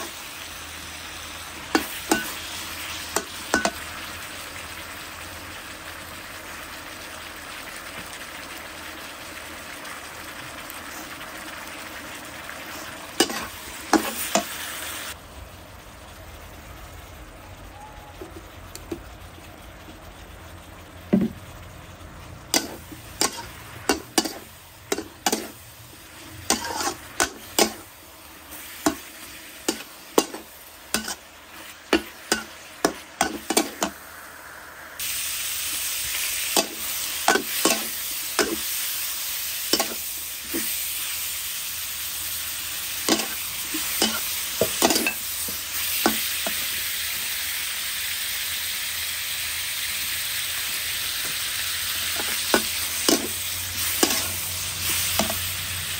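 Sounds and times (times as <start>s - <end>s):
food sizzling: 0.0s - 55.9s
metal spatula scraping wok: 12.6s - 14.7s, 22.4s - 34.0s, 36.2s - 39.0s, 42.7s - 46.7s, 51.8s - 55.9s.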